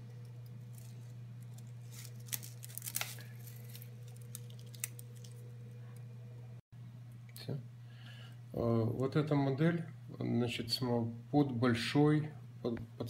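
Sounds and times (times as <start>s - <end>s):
steady low hum: 0.0s - 13.0s
scissors snipping plastic: 0.7s - 5.4s.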